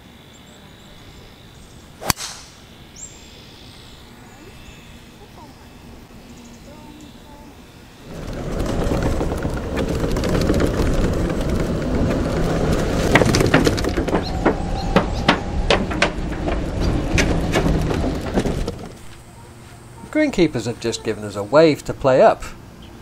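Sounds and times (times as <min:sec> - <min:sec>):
golf cart driving: 0:06.6 - 0:21.4
wheels rattling over wooden planks: 0:08.0 - 0:19.4.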